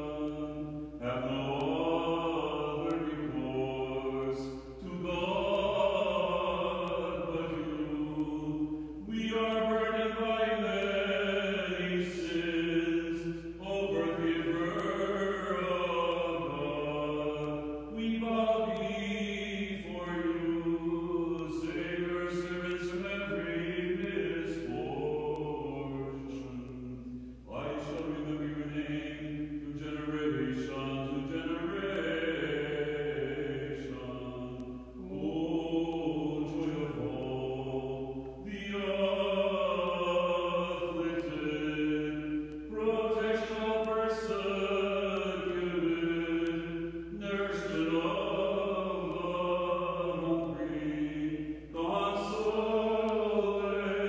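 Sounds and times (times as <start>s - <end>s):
voices chanting on held notes: 0.0s - 54.0s.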